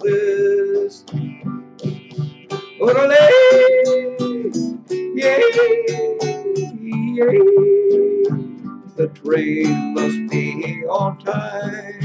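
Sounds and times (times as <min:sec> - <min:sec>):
classical guitar picking: 0:00.0 - 0:12.0
man singing held notes: 0:02.8 - 0:08.4, 0:09.0 - 0:12.0.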